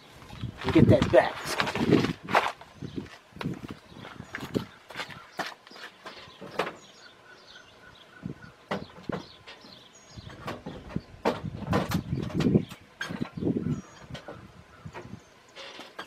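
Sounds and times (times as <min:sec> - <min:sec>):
sharp knocks and clicks: 0:08.7 - 0:13.4.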